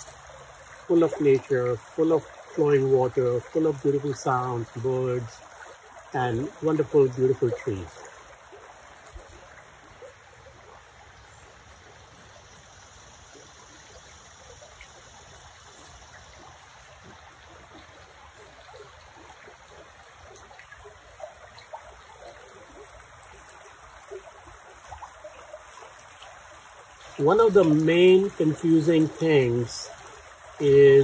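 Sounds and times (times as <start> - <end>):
creek trickling over stones: 0.0 - 31.0.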